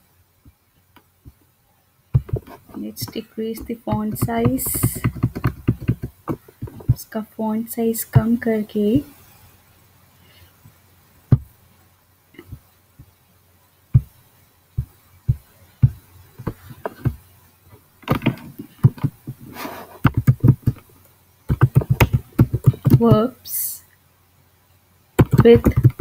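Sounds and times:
typing on computer keyboard: 3.6 - 7.0, 20.0 - 20.8, 21.5 - 23.2, 25.2 - 26.0.

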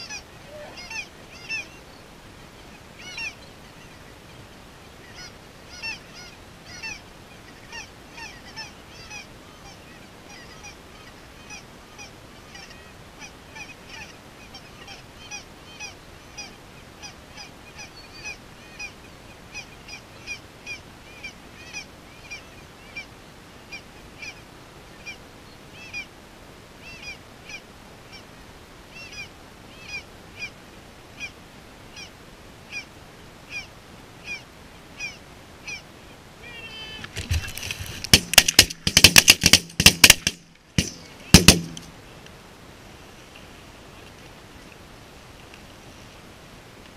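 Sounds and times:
goose yelping calls: 0.0 - 1.9, 2.7 - 4.0, 5.0 - 23.1, 33.5 - 34.4, 35.0 - 37.2.

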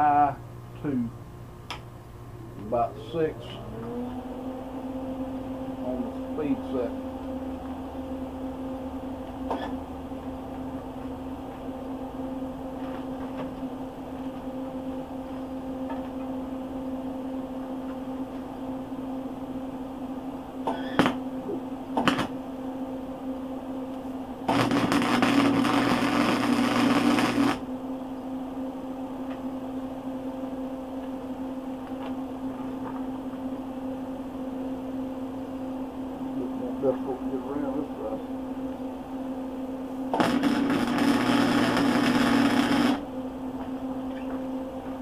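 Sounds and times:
electrical hum: 0.0 - 45.0
welding arc crackle: 20.9 - 21.2, 22.0 - 22.3, 24.5 - 27.6, 40.1 - 43.0.

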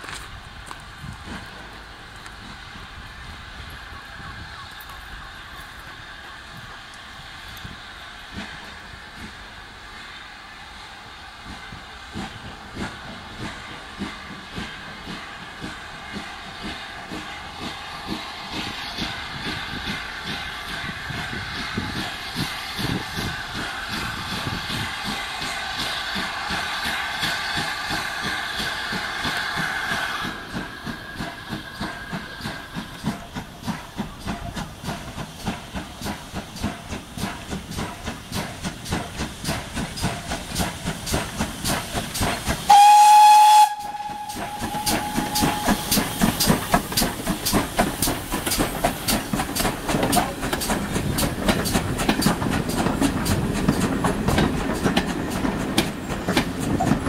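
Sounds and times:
steam locomotive exhaust chuffs: 0.0 - 57.0
steam locomotive whistle: 42.6 - 47.2.

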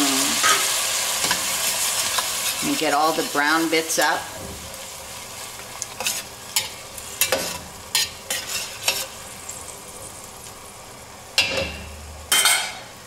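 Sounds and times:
wine sizzling in pot: 0.0 - 13.0
utensil scraping metal pot: 5.9 - 9.2.

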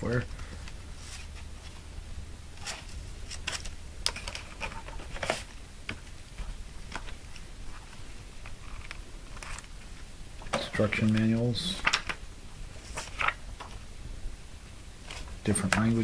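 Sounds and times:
paper booklets rustling: 2.6 - 5.5, 12.8 - 13.9.

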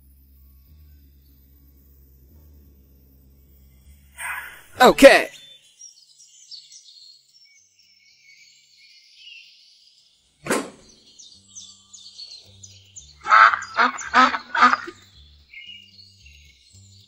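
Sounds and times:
faint bird chirps: 3.5 - 17.0
loud short pitched calls: 4.2 - 5.3, 13.2 - 15.1
sharp swish: 10.4 - 11.0.

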